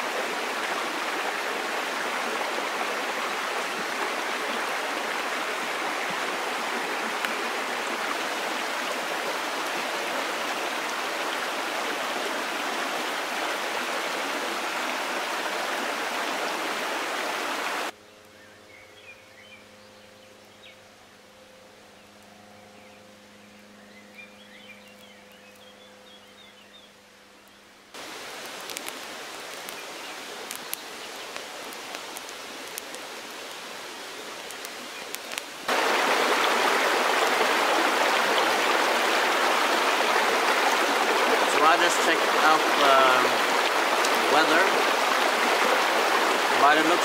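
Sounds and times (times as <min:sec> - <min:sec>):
stream rushing over rocks: 0:00.0 - 0:18.0, 0:28.0 - 0:47.0
faint scattered clicks: 0:28.4 - 0:33.6, 0:34.4 - 0:35.6.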